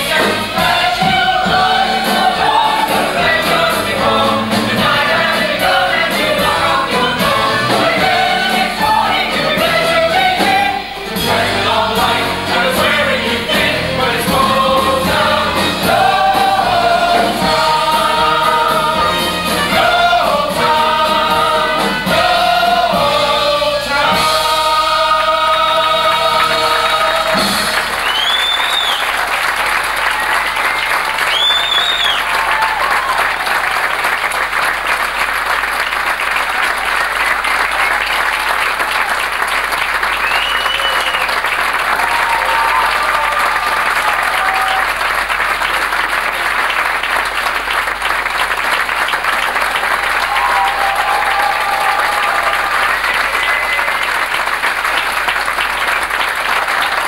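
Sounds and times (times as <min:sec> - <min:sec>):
audience applauding: 0:00.0 - 0:57.0
cheers: 0:27.8 - 0:34.3, 0:36.5 - 0:45.9, 0:49.2 - 0:57.0
whistles: 0:28.0 - 0:29.3, 0:30.2 - 0:32.4, 0:40.1 - 0:41.4.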